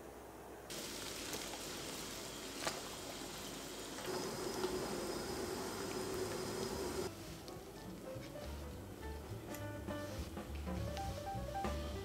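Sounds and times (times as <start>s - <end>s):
water simmering in a pot: 0.7s - 7.1s.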